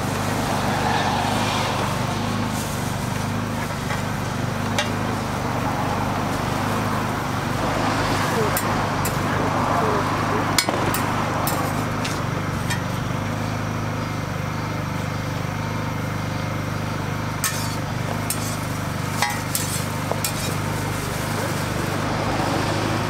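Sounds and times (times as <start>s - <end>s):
metal spatula scraping griddle: 8.0s - 9.4s, 10.5s - 13.0s, 17.4s - 22.0s.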